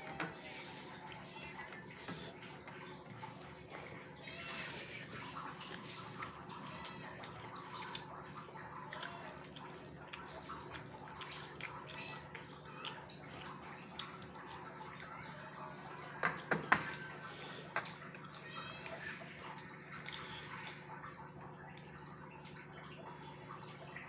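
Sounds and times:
wet chewing: 0:00.0 - 0:15.8.

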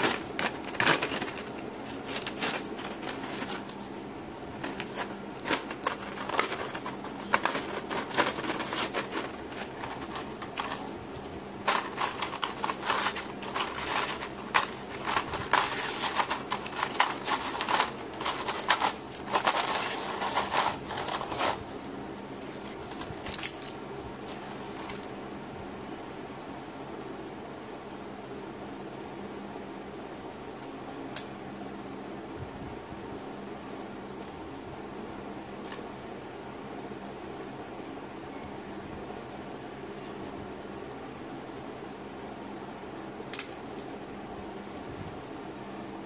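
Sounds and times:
plastic packaging crinkling and tearing: 0:00.0 - 0:04.0, 0:04.6 - 0:21.7, 0:22.4 - 0:25.1.

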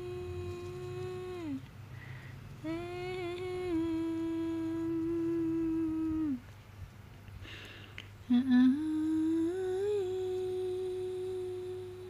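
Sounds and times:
person humming: 0:00.0 - 0:01.7, 0:02.6 - 0:06.4, 0:08.2 - 0:12.0.

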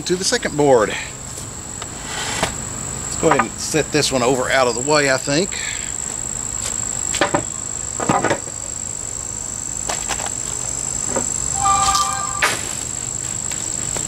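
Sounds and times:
high-pitched insect drone: 0:10.6 - 0:13.5.

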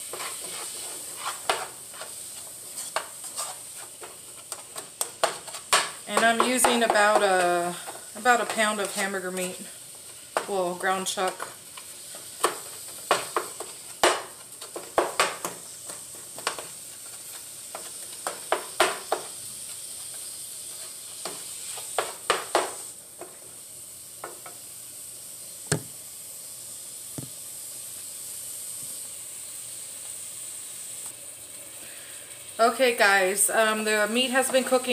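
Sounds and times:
utensil clicking and scraping pan: 0:00.0 - 0:10.6
meat sizzling in frying pan: 0:00.0 - 0:34.9
sharp knock: 0:25.7 - 0:25.9.

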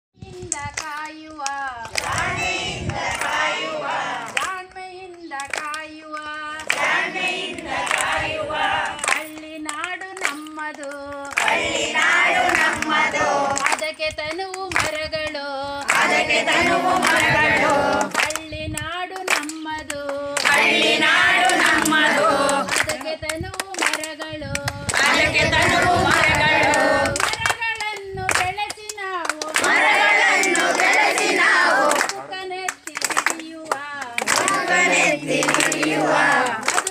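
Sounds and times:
hand claps: 0:00.4 - 0:36.9
group singing: 0:01.4 - 0:04.7, 0:05.4 - 0:09.4, 0:11.2 - 0:13.9, 0:15.6 - 0:18.4, 0:19.5 - 0:23.2, 0:24.6 - 0:27.3, 0:29.4 - 0:36.9.

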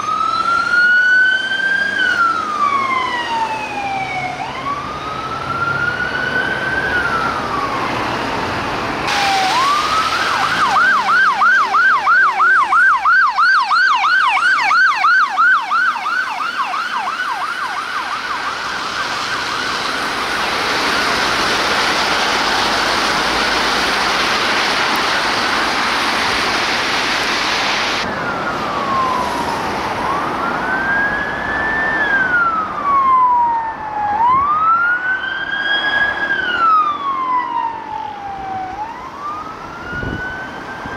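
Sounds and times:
siren wailing and yelping: 0:00.0 - 0:08.2, 0:09.1 - 0:24.0, 0:28.0 - 0:40.9
steady rushing noise: 0:18.0 - 0:30.2.

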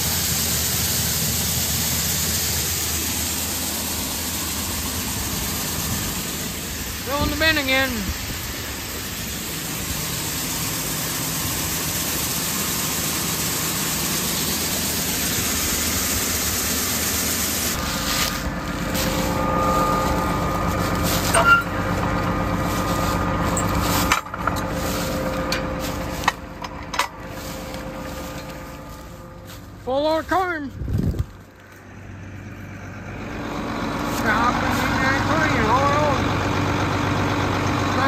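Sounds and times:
grain pouring into steel bin: 0:00.0 - 0:26.3
engine humming: 0:00.0 - 0:38.0.

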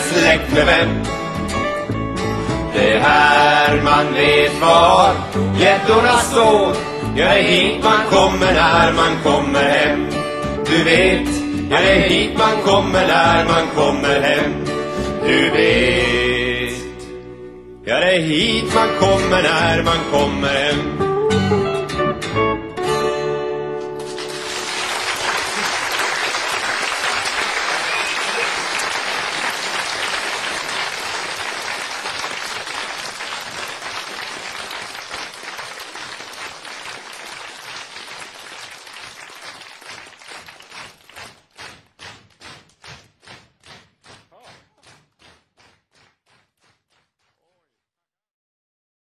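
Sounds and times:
audience applause: 0:24.0 - 0:45.8.

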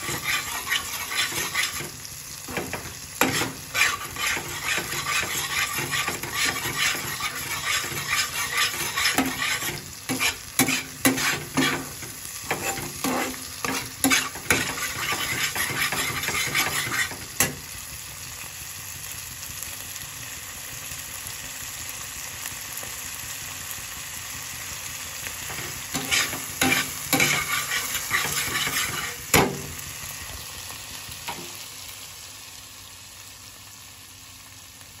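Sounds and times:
spatula scraping frying pan: 0:00.0 - 0:17.6, 0:25.4 - 0:29.8
gravy sizzling: 0:00.0 - 0:35.0.

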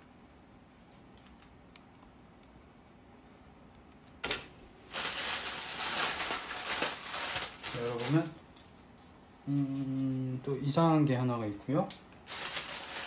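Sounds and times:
packaging rustling and crinkling: 0:04.9 - 0:08.4, 0:12.3 - 0:13.0.

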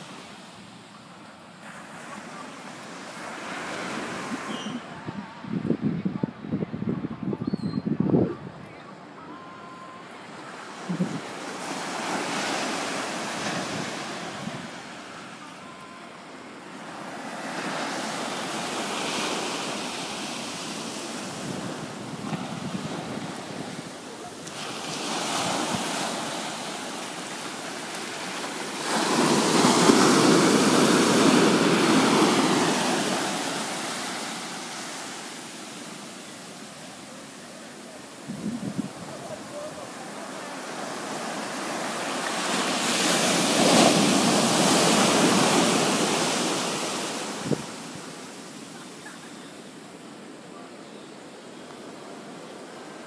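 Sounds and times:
ocean surf breaking on beach: 0:00.0 - 0:05.7, 0:09.9 - 0:53.0.

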